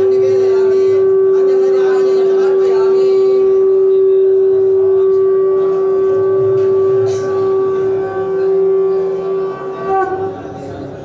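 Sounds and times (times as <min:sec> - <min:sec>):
faint crowd voices: 0:00.0 - 0:11.0
wind instrument long note: 0:03.6 - 0:11.0.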